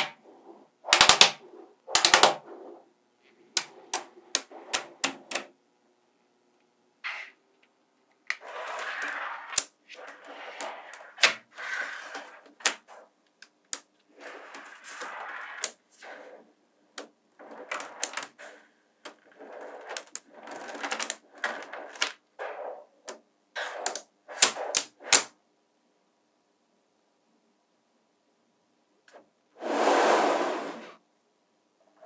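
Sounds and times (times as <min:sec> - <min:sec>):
magnetic balls clicking together: 0:00.9 - 0:02.4, 0:03.5 - 0:05.5, 0:07.6 - 0:11.4, 0:16.9 - 0:22.3, 0:23.0 - 0:25.3.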